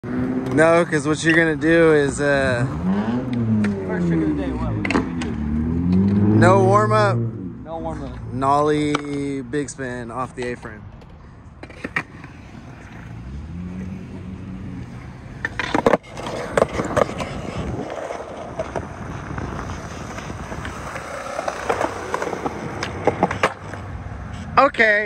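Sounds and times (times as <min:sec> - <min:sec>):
skateboard wheels rolling on concrete: 0:00.0 - 0:07.1, 0:07.8 - 0:25.0
skateboard clacks: 0:14.8 - 0:23.9.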